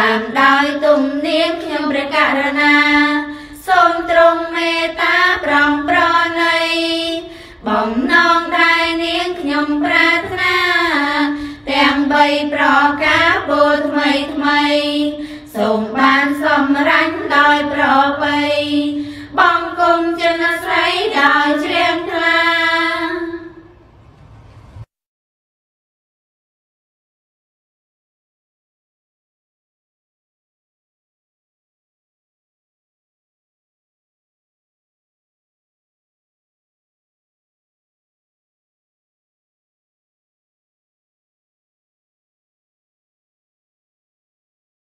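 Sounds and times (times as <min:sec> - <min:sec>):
woman singing slow song: 0:00.0 - 0:23.7.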